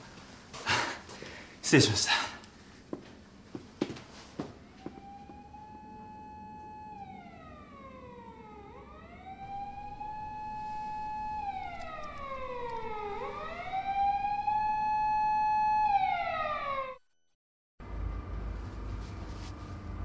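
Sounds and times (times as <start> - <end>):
siren wailing: 4.5 - 17.1.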